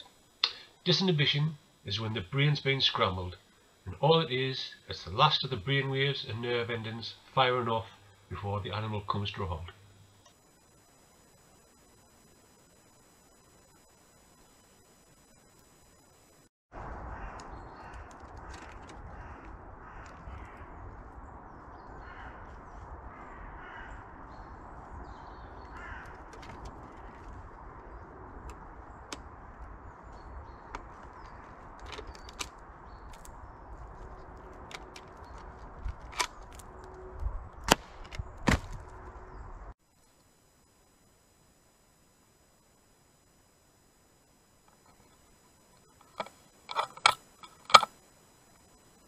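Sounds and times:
steady low rumble: 16.7 - 39.8
crows cawing: 17.0 - 21.0, 21.8 - 24.2, 25.5 - 27.2.

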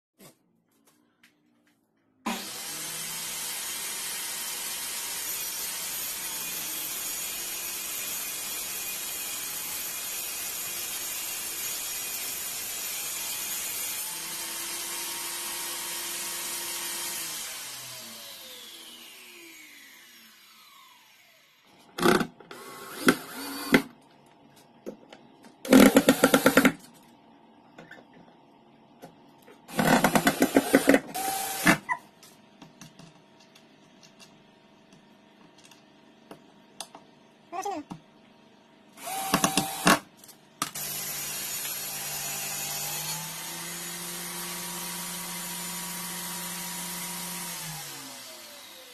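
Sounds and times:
circular saw running and winding down: 13.1 - 21.6, 40.8 - 48.9
cordless drill bursts: 22.0 - 23.9, 29.7 - 31.8, 39.0 - 40.0, 40.8 - 48.9.

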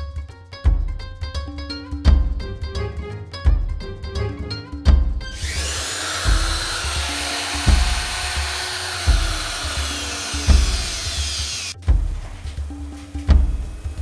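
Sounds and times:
background music with steady beat: 0.0 - 14.0
router motor whining: 5.3 - 11.8.

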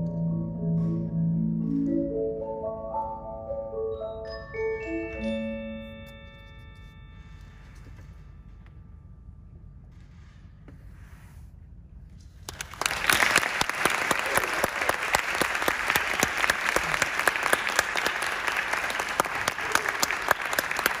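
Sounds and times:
audience applauding: 12.5 - 21.0.

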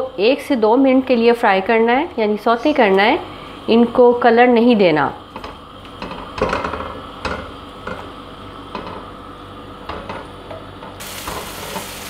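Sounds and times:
onions sizzling in oil: 11.0 - 12.0.

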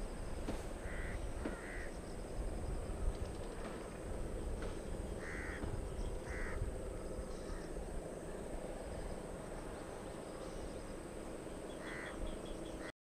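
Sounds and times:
low background noise: 0.0 - 12.9
crow cawing: 0.8 - 2.0, 5.2 - 6.7, 11.8 - 12.2.

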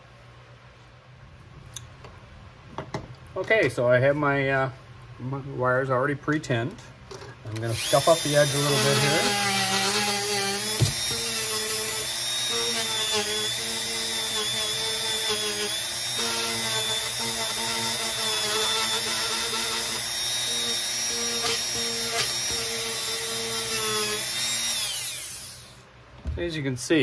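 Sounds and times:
rotary tool grinding metal: 7.8 - 25.8.

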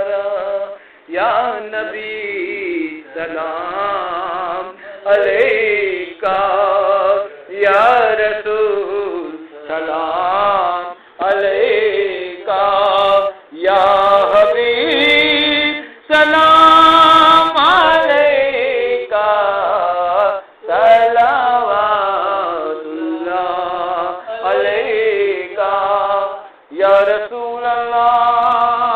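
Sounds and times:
person singing devotional song: 0.0 - 28.9.

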